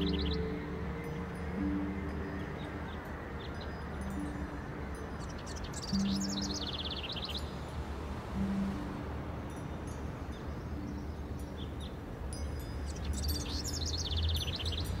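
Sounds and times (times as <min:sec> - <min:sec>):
high bird-like chirps: 0:00.0 - 0:07.6
ambient drone and hiss: 0:00.0 - 0:15.0.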